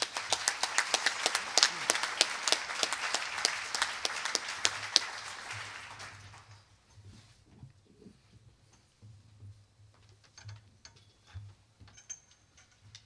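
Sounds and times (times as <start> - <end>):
close single claps: 0.0 - 6.6
audience applauding: 0.0 - 6.7.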